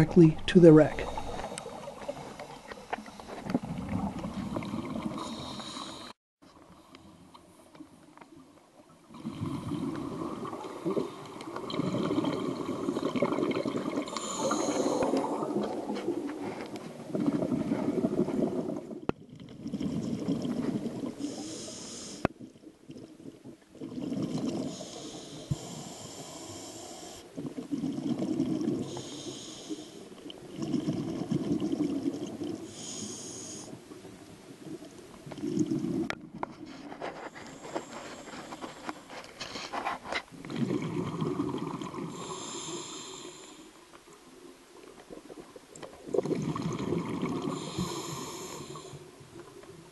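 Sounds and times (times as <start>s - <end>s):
exhaled bubbles gurgling: 0.0s - 6.1s, 8.8s - 38.7s, 40.3s - 49.9s
regulator inhalation hiss: 21.2s - 22.3s, 24.7s - 27.2s, 28.9s - 30.1s, 32.7s - 33.8s, 42.1s - 43.7s, 47.5s - 49.0s.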